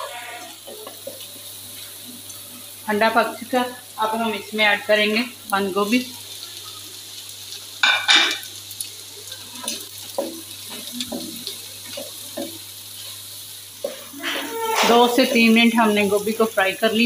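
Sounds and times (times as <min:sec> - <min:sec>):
spatula scraping wok: 0:00.0 - 0:02.0, 0:09.6 - 0:16.0
food sizzling: 0:00.0 - 0:17.0.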